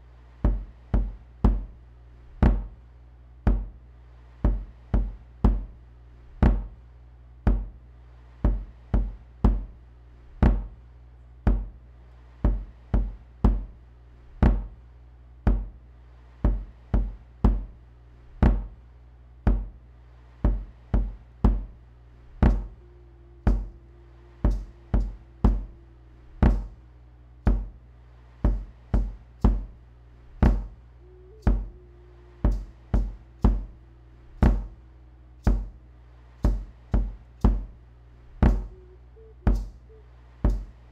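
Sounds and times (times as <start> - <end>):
looped drum beat: 0.4 - 2.8, 20.5 - 26.8, 27.4 - 27.8, 28.4 - 35.8, 36.4 - 40.9
low drone: 22.0 - 28.1, 30.0 - 40.9
faint wavering held tone: 22.5 - 27.4, 30.7 - 36.2, 38.5 - 40.9.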